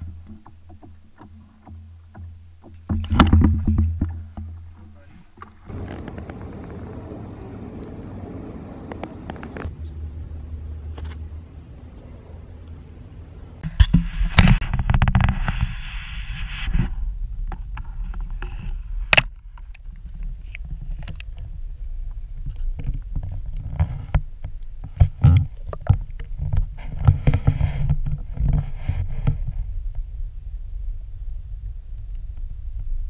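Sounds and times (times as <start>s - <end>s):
underwater clicks and knocks: 0.0s - 6.8s, 19.1s - 21.6s, 22.4s - 28.6s
muffled underwater rumble: 3.0s - 33.0s.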